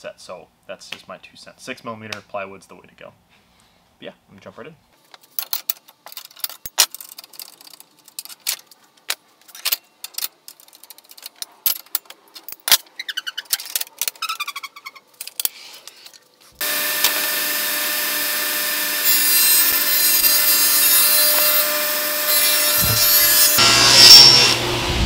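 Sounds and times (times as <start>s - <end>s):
workshop machine whirring: 16.6s - 25.0s.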